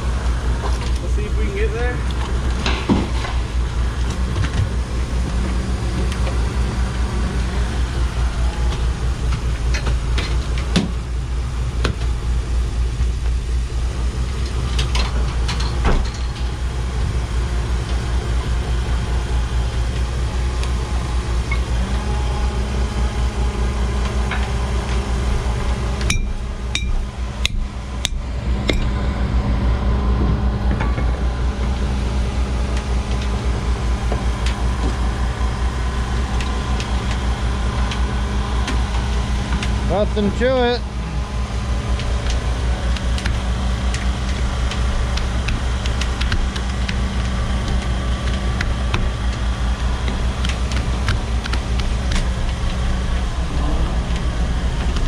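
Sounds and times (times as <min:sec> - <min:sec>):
boat engine and machinery pulsing: 0:00.0 - 0:55.0
sharp knocks and clicks: 0:42.0 - 0:52.8.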